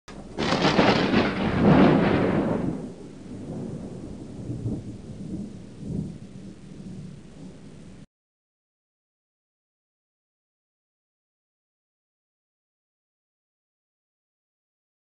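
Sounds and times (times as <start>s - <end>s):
thunder crash and rumble: 0.1s - 8.0s.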